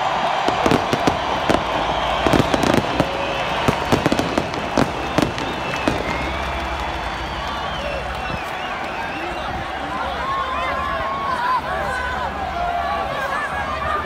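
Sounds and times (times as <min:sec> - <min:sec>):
fireworks bangs and pops: 0:00.2 - 0:07.5.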